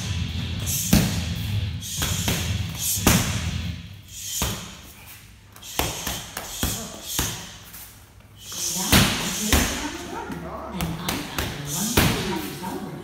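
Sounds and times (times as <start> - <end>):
punches and kicks on striking pads: 0.8 - 1.3, 1.9 - 3.5.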